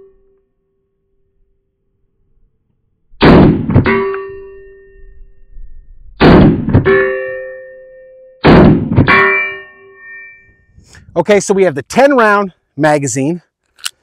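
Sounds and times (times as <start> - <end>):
pistol shots: 3.2 - 3.9, 6.2 - 6.9, 8.4 - 9.2.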